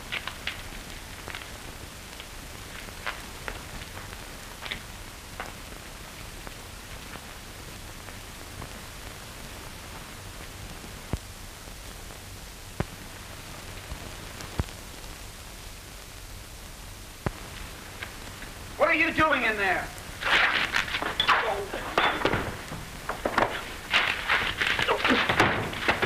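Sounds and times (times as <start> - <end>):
film soundtrack hiss and hum: 0.0 - 26.0
clicks and pops from film: 0.1 - 4.8, 17.2 - 18.5, 20.2 - 26.0.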